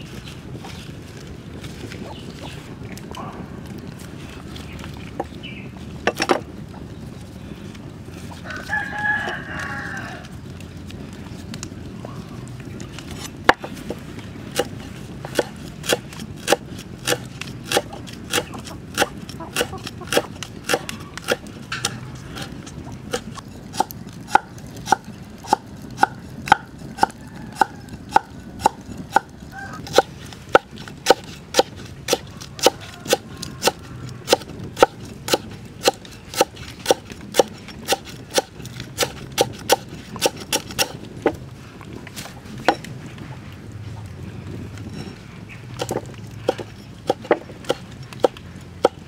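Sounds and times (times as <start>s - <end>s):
cleaver chopping on wooden block: 29.9s - 41.0s.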